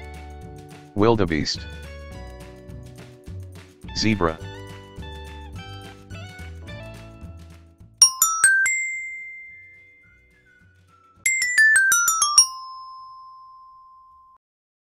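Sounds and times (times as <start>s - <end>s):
bell-like chime jingle: 8.0s - 10.1s, 11.3s - 14.4s.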